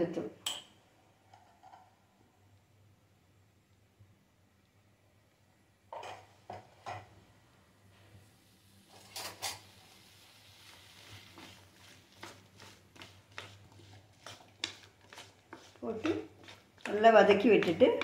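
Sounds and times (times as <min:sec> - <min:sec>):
faint hiss: 0:07.2 - 0:12.1
spoon scraping metal pan: 0:10.7 - 0:18.0.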